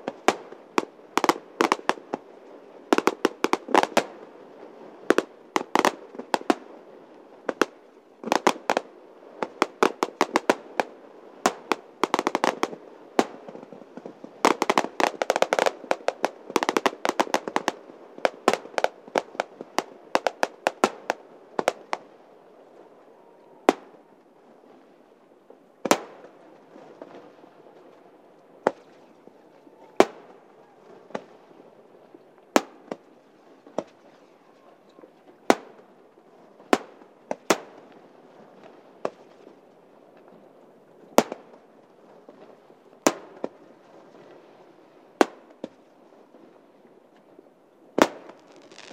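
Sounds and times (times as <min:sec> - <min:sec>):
fireworks bangs and crackles: 0:00.0 - 0:02.3, 0:02.9 - 0:06.7, 0:07.4 - 0:22.1, 0:23.6 - 0:24.0, 0:25.8 - 0:27.4, 0:30.0 - 0:30.4, 0:31.0 - 0:31.4, 0:32.5 - 0:34.0, 0:35.4 - 0:35.9, 0:36.6 - 0:39.3, 0:48.0 - 0:48.9.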